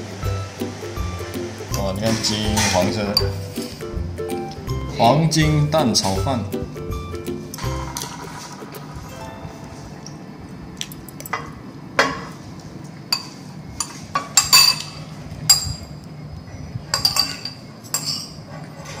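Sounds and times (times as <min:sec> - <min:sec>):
spoon clinking against ceramic bowl: 0:02.5 - 0:03.4, 0:16.9 - 0:18.4.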